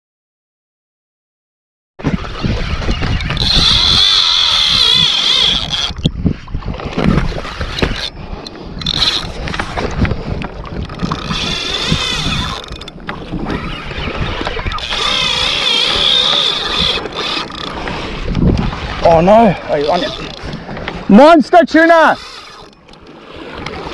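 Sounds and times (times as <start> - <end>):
wind buffeting microphone: 2.0 - 21.6
fishing reel whining: 2.2 - 6.1, 7.0 - 9.9, 10.8 - 18.2, 19.5 - 20.6, 21.8 - 23.9.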